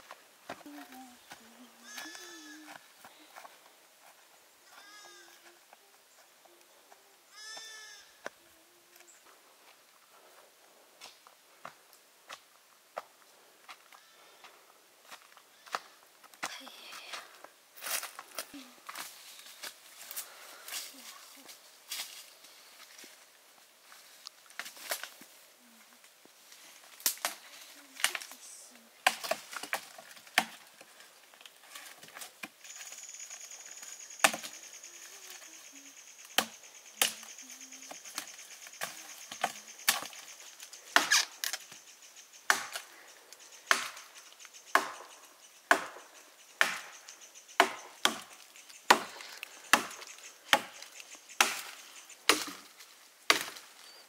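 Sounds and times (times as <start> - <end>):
blade chopping wood: 41.0 - 41.3, 42.5 - 42.9, 46.6 - 46.9, 48.9 - 50.8, 53.3 - 53.6.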